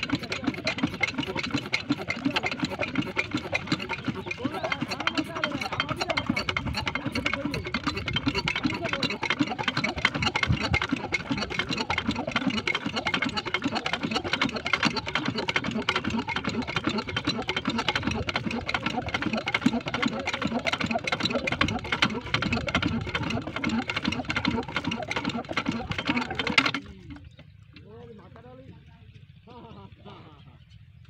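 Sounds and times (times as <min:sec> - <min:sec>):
small pump engine clattering: 0:00.0 - 0:29.5.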